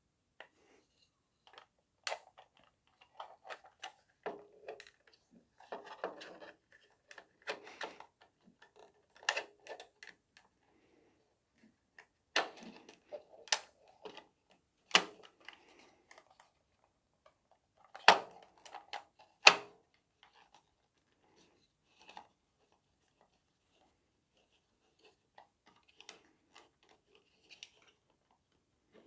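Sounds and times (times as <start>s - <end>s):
plastic parts clicking: 1.4s - 10.5s, 12.0s - 20.6s.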